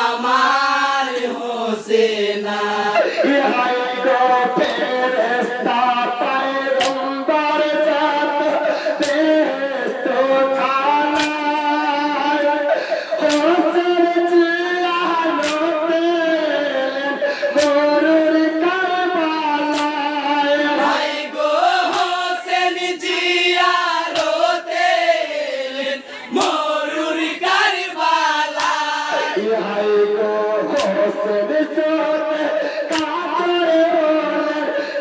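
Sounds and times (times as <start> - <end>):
person singing a chant-like lament: 0.0 - 35.0.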